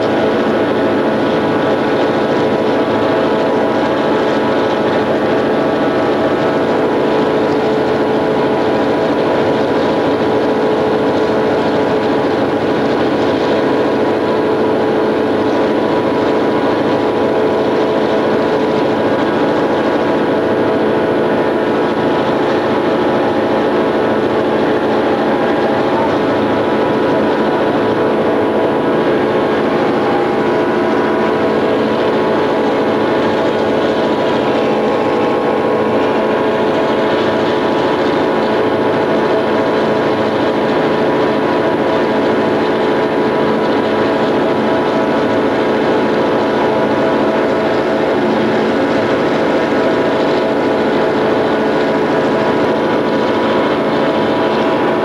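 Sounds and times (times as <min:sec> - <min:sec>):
diesel locomotive engine running: 0:00.0 - 0:55.0.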